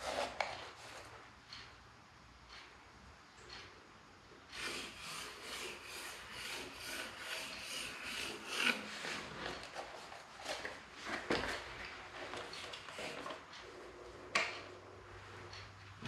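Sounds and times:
pencil scratching on wood: 4.6s - 10.0s.

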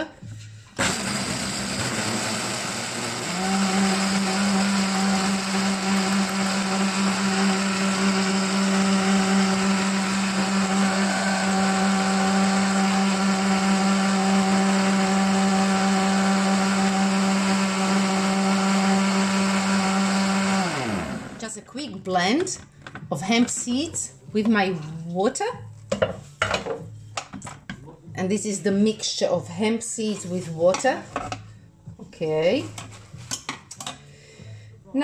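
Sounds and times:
blender running: 0.8s - 21.4s.

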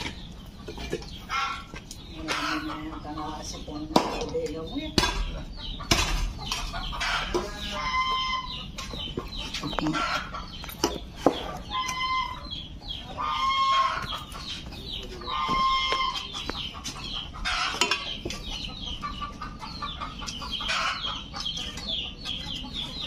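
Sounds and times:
poultry clucking: 0.0s - 23.0s.

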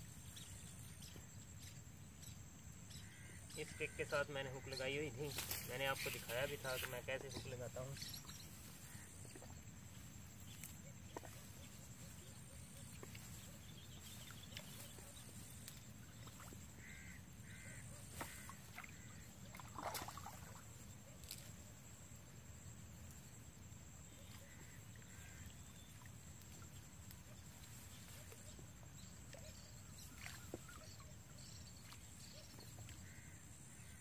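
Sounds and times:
crow cawing: 16.8s - 19.1s.

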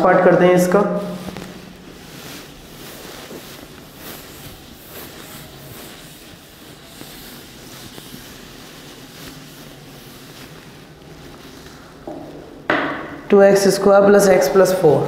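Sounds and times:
duster rubbing on chalkboard: 1.0s - 12.3s.

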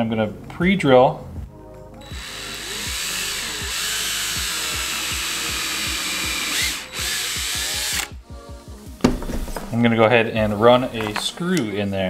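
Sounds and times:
cordless drill drilling wood: 2.0s - 8.2s.

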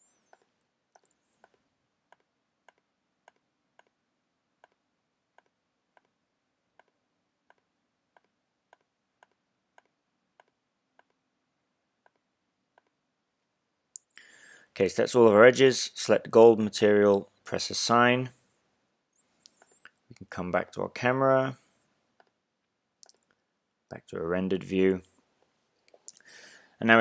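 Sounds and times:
computer mouse clicks: 0.3s - 4.0s, 4.6s - 4.8s, 6.8s - 11.2s, 19.4s - 20.3s.

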